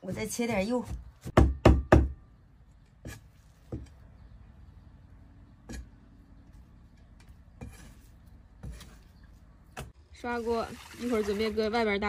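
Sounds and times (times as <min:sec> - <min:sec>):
cleaver chopping on wooden block: 0:00.8 - 0:02.2.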